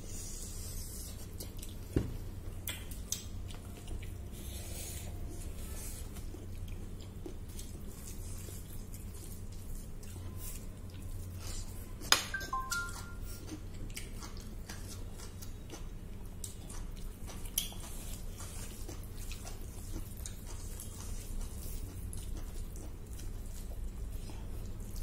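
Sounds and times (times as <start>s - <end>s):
low steady hum: 0.0s - 25.0s
chewing: 1.0s - 12.1s, 12.7s - 25.0s
fingers clicking in wet food: 2.6s - 4.2s, 12.6s - 24.0s.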